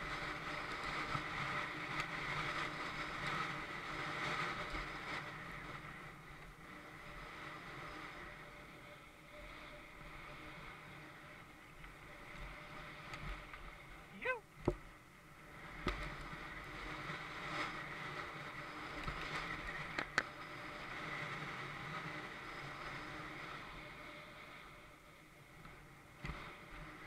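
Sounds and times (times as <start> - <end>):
bike knocking and rattling: 15.7 - 16.6, 18.9 - 20.4.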